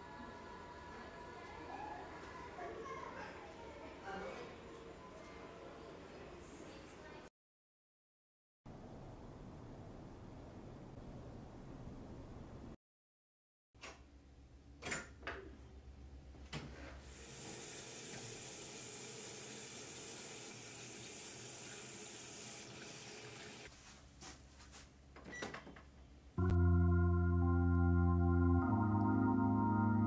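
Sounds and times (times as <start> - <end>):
keyboard music: 26.4 - 30.0.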